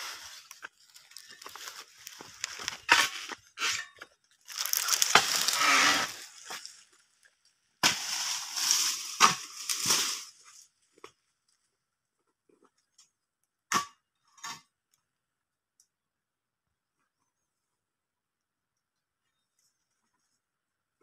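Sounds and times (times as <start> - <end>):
dry fronds rustling: 0.0 - 3.5, 4.4 - 10.9.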